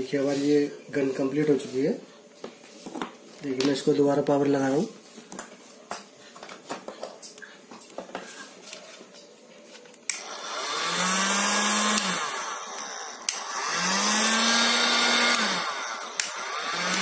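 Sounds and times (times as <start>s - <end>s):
hot air gun blower rushing: 10.1s - 17.0s.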